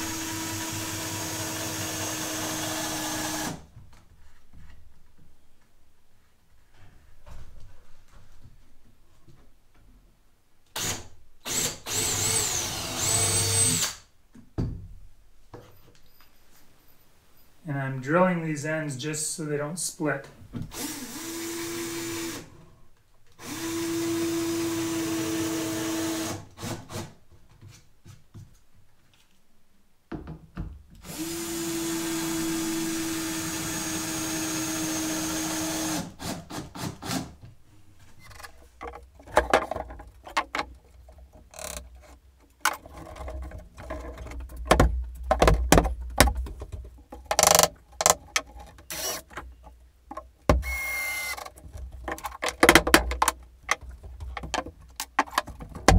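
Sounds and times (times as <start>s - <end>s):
cordless drill running: 0.0s - 3.6s, 10.8s - 14.0s, 20.7s - 22.5s, 31.0s - 36.4s, 48.9s - 49.3s, 50.6s - 51.4s
sharp knocks and clatter: 38.3s - 50.6s, 51.4s - 55.9s.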